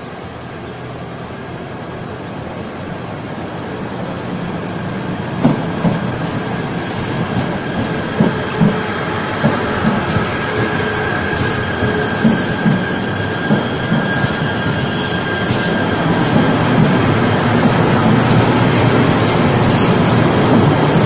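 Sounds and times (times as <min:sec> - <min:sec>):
train wheel and motor rumble: 0:00.0 - 0:21.0
faint wheel squeal: 0:10.6 - 0:18.4.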